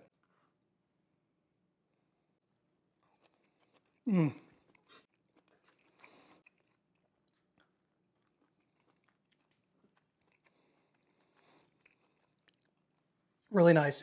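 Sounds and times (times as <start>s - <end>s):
faint chewing: 2.4s - 13.5s.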